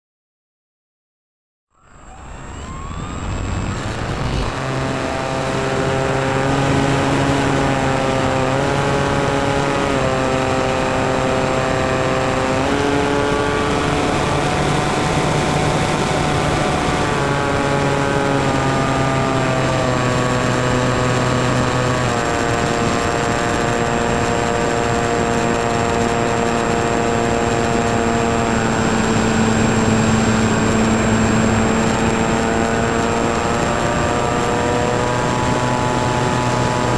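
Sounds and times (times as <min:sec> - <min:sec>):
model airplane motor whine: 0:01.8 - 0:36.9
rush of air: 0:02.8 - 0:04.6.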